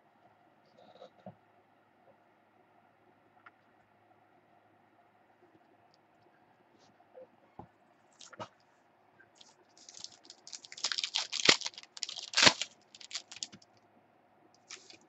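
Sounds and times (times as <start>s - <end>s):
foil wrapper crinkling: 9.4s - 13.8s, 14.6s - 15.0s.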